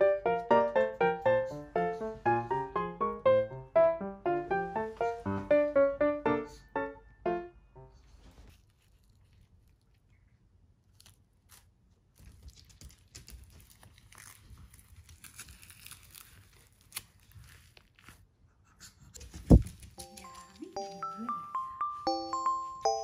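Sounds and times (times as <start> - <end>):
rubber glove rustling and crackling: 8.0 - 18.4.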